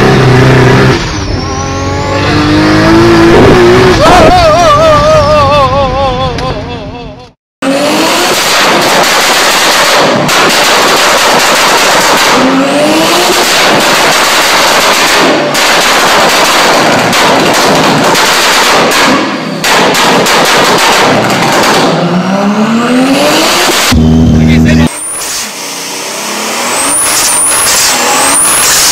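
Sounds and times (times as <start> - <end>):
car engine revving at full throttle: 0.0 - 4.9, 7.6 - 28.9
exhaust crackling and banging: 8.3 - 12.5, 13.3 - 22.0.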